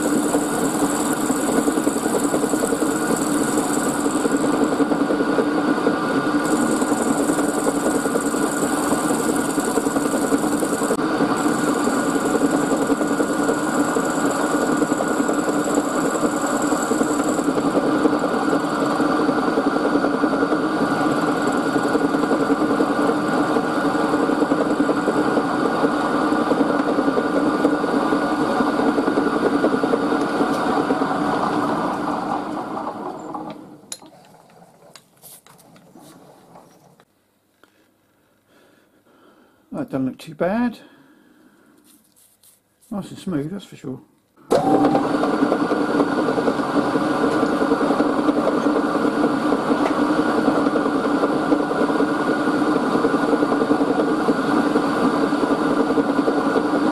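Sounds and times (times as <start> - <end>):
milling machine cutting brass: 0.0 - 4.8, 6.4 - 17.8.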